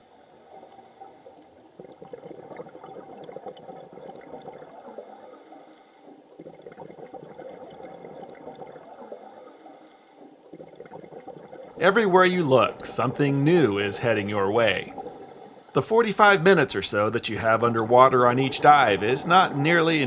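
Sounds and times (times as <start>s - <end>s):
underwater bubbling and gurgling: 0.0s - 20.0s.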